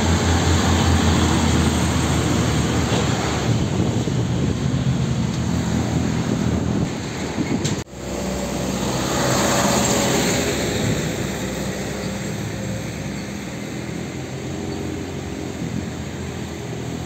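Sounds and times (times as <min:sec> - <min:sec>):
dump truck engine running: 0:00.0 - 0:17.0
motorcycles passing: 0:07.9 - 0:17.0.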